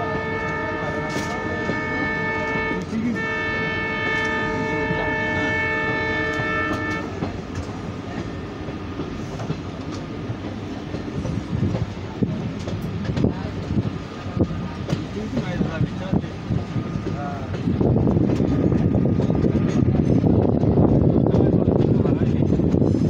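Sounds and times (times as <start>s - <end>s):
train horn: 0.0s - 7.3s
moving train rumble and clatter: 0.0s - 23.0s.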